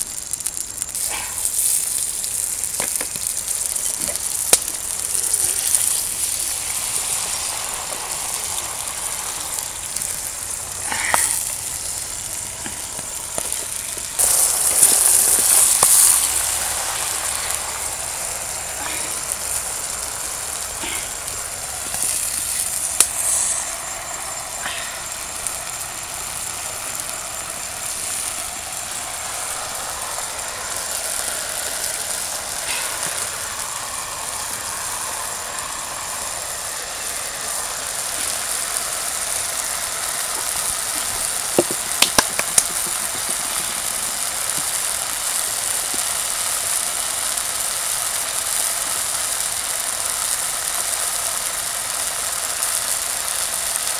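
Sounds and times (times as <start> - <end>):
outdoor background hiss: 0.0 - 53.9
sharp clicks and taps: 41.5 - 43.8.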